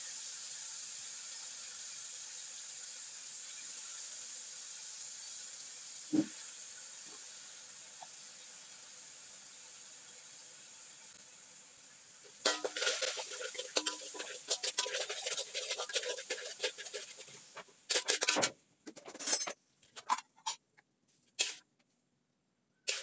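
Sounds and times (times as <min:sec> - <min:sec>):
garlic sizzling in hot oil: 0:00.0 - 0:18.5
metal spatula scraping a wok: 0:12.4 - 0:20.6, 0:21.4 - 0:21.6.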